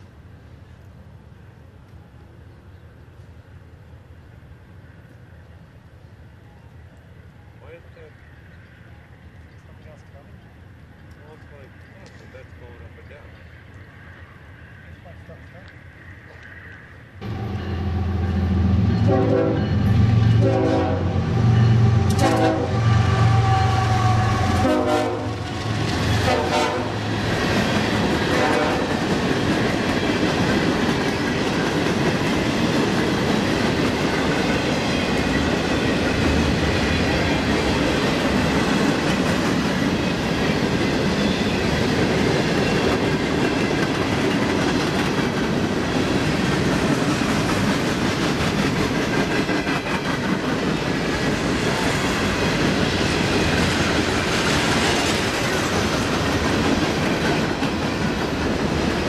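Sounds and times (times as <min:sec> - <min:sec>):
train horn blasts: 0:17.2 - 0:27.1, 0:28.3 - 0:29.0
train wheels clickety-clack: 0:24.4 - 0:59.0.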